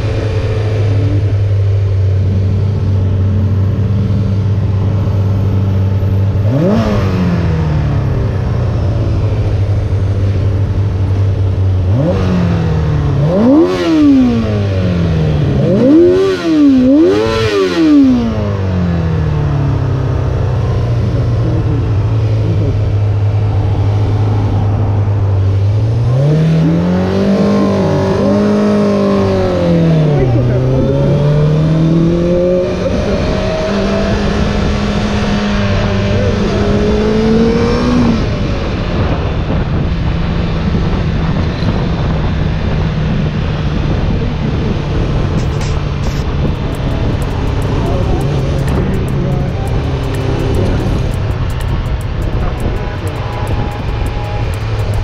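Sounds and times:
motorcycle engine revving: 0.0 - 55.0.

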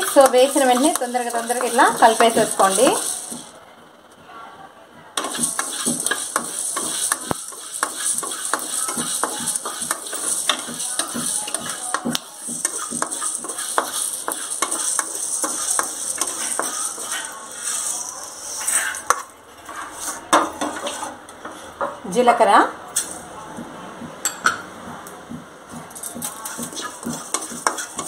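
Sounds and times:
seeds rattling in a metal pan: 0.0 - 3.5, 5.2 - 19.3, 25.9 - 28.0
steady hiss: 5.2 - 19.2.

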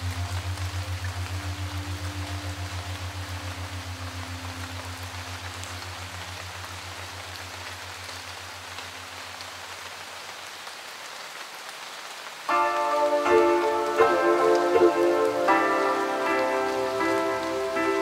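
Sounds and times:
rain falling on shelter: 0.0 - 18.0
low music note: 12.5 - 18.0.

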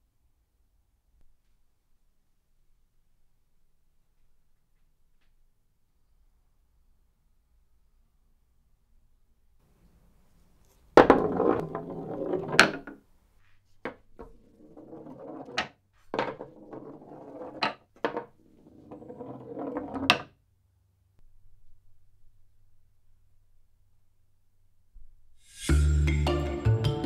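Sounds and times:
balls rolling on wooden runs: 10.9 - 13.0, 13.8 - 20.4
ball clacking to a stop: 11.0 - 13.0, 13.9 - 20.3.

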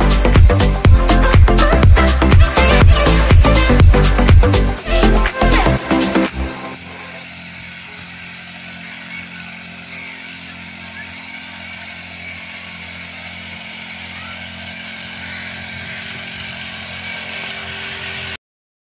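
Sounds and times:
hiss of spray mist: 0.0 - 18.4
small engine drone: 0.0 - 18.4.

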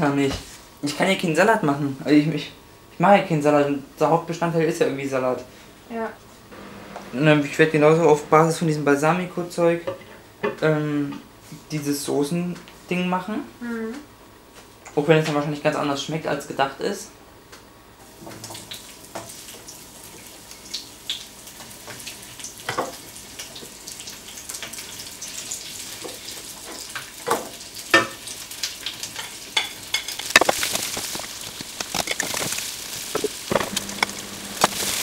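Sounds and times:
vegetables sizzling in a wok: 5.5 - 10.2, 18.0 - 35.0
knocks and clatters in a pan: 21.6 - 23.6, 26.0 - 28.3, 29.0 - 34.9.

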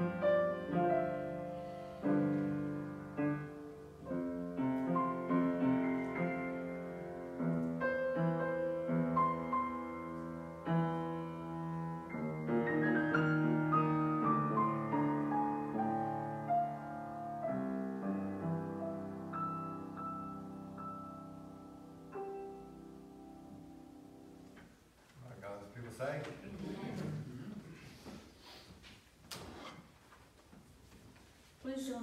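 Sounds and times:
solo grand piano: 0.0 - 25.0.

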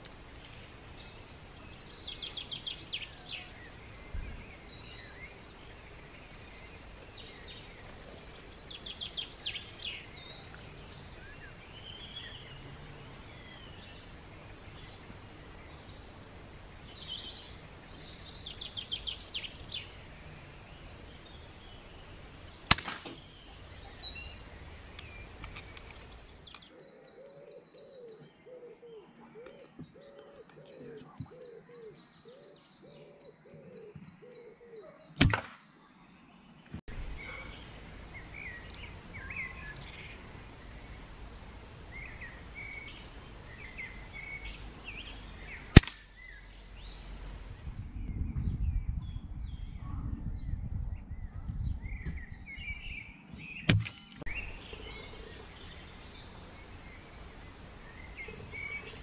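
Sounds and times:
birds chirping: 0.0 - 59.0
air rifle shots: 22.7 - 23.3, 35.2 - 35.6, 45.7 - 46.2, 53.7 - 54.2.

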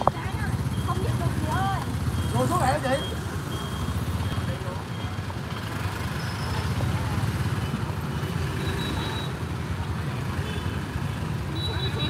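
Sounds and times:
crowd voices: 0.0 - 12.0
vehicle engines driving past: 0.0 - 12.0.

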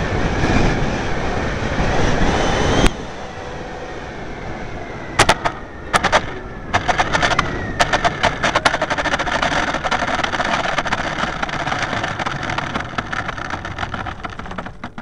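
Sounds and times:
model aircraft rolling on tarmac: 0.0 - 15.0
rattle of bumps and clicks: 5.2 - 15.0.

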